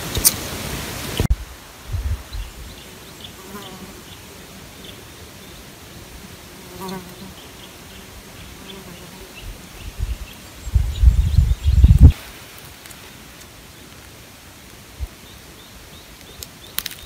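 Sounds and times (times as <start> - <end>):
soft outdoor hiss: 0.0 - 17.0
fly buzzing past: 3.4 - 4.2, 6.5 - 10.1.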